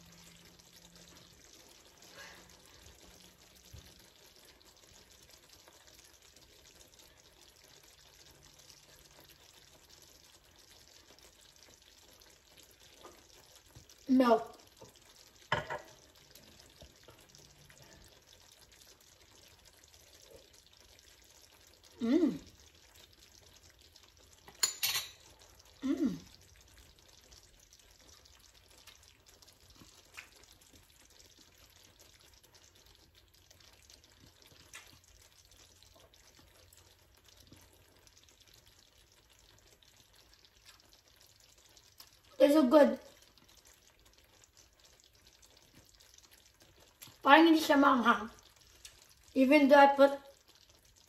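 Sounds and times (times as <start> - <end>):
woman's wordless vocal reactions: 22.0 - 22.5, 25.8 - 26.4.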